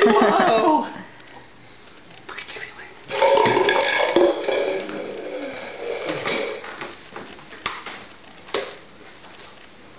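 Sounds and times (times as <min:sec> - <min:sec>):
footsteps on hardwood floor: 0:05.9 - 0:09.4.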